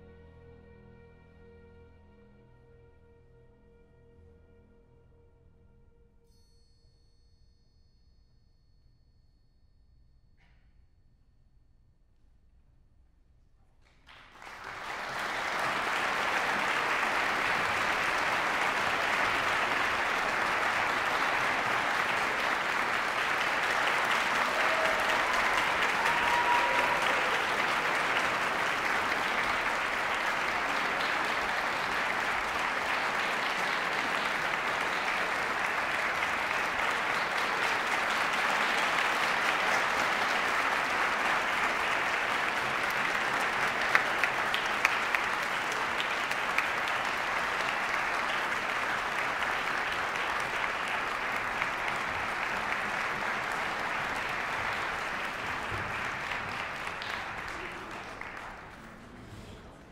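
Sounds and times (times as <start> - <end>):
audience applauding: 14.0 - 59.9.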